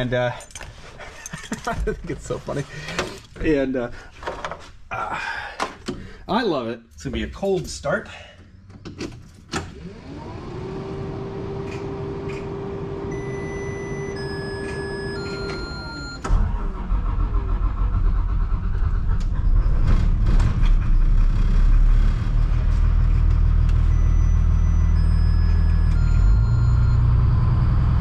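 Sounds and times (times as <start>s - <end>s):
bus engine starting and idling: 8.5s - 28.0s.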